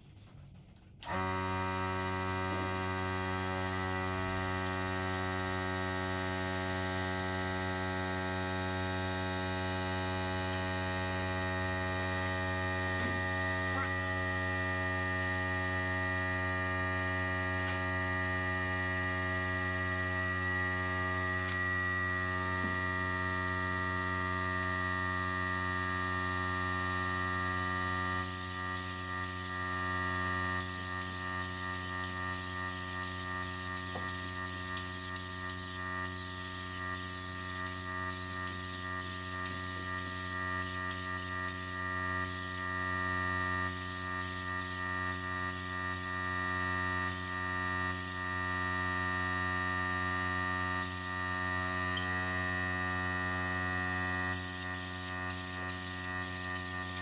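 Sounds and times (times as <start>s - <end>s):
spray gun hissing bursts: 28.2s - 29.6s, 30.6s - 42.7s, 43.6s - 46.2s, 47.1s - 48.3s, 50.8s - 51.2s, 54.3s - 57.0s.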